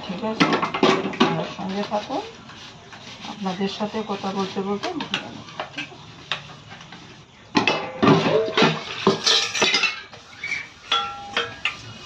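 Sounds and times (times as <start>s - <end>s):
metal dishes clanking: 7.6s - 12.0s.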